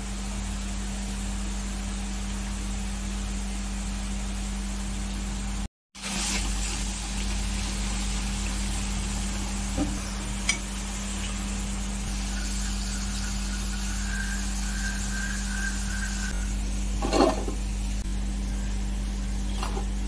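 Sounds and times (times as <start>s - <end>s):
hot oil sizzling: 0.0s - 20.0s
steady low hum: 7.2s - 20.0s.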